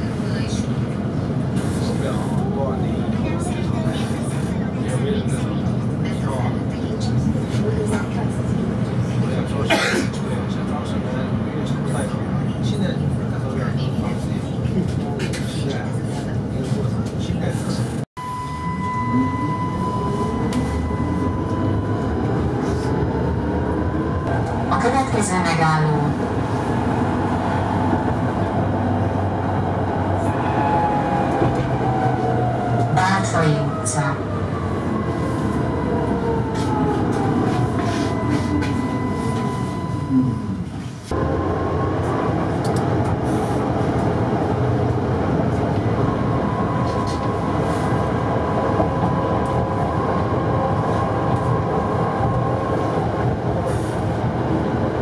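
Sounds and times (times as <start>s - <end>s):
tram wheels rumbling: 18.7s - 55.0s.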